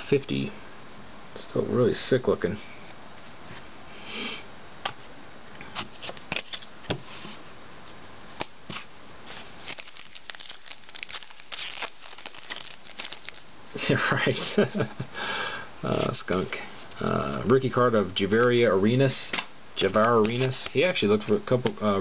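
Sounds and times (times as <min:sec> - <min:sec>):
foil wrapper crinkling: 0:09.3 - 0:13.5.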